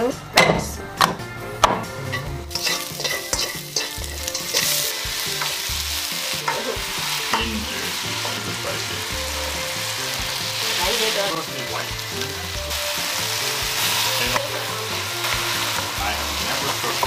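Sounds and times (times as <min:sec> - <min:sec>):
spatula knocking on wok: 0:02.5 - 0:04.8
potato sizzling in hot oil: 0:02.5 - 0:17.0.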